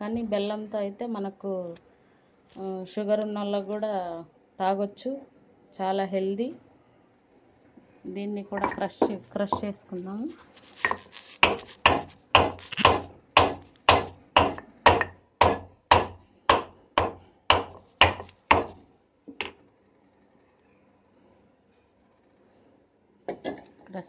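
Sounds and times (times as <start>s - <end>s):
pestle pounding in a mortar: 10.9s - 18.8s.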